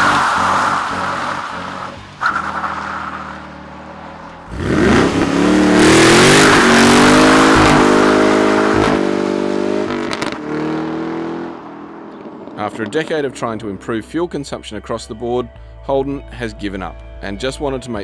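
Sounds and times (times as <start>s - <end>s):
car engine revving hard: 4.5s - 11.7s.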